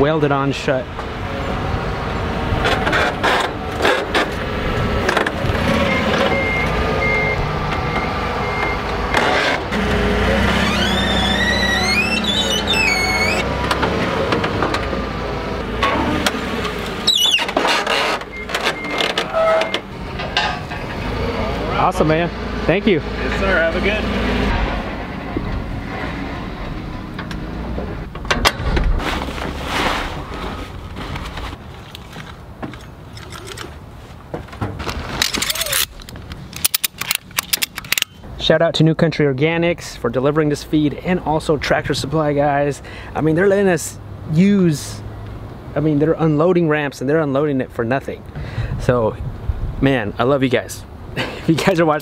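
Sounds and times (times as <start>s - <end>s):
forklift running: 2.3s - 28.4s
reversing beeper: 5.8s - 8.9s
metallic clanks: 17.5s - 21.1s
rustling: 28.6s - 38.0s.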